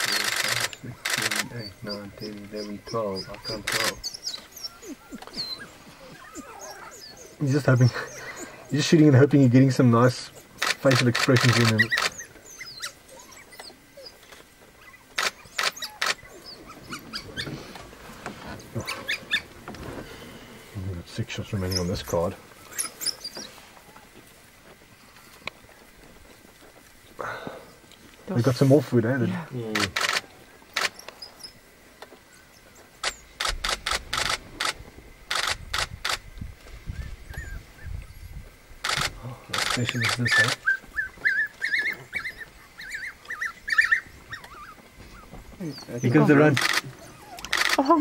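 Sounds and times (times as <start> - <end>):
camera shutter clicks: 0.0 - 1.5, 33.0 - 36.2, 46.6 - 47.8
wild dogs twittering: 0.0 - 36.3, 36.9 - 48.0.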